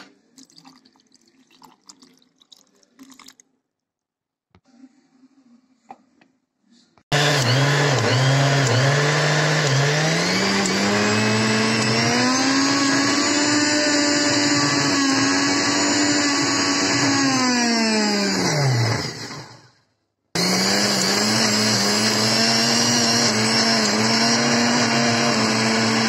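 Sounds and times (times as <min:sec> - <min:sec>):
electric blender motor: 0:07.1 - 0:19.8, 0:20.4 - 0:26.0.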